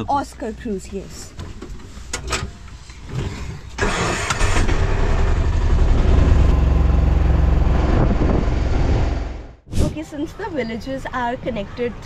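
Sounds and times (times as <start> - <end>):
auto-rickshaw engine running: 3.1 - 9.6.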